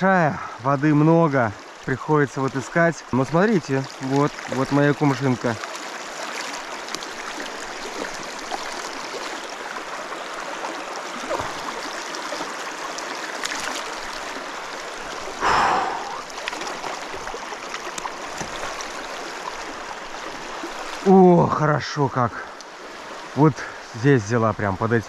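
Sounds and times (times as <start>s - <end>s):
river running over rocks: 0.0s - 25.0s
net splashing into water: 13.3s - 14.0s.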